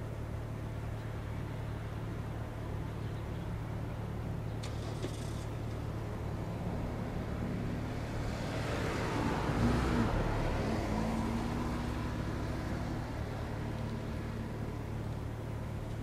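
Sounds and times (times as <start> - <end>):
motor engine passing by: 6.5 - 14.9.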